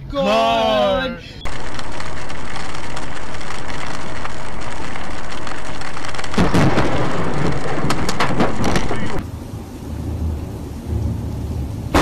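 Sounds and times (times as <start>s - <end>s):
loud thunderclap: 1.5s - 9.3s
heavy rain on a car: 1.5s - 12.0s
sharp thunder cracks: 6.3s - 9.3s.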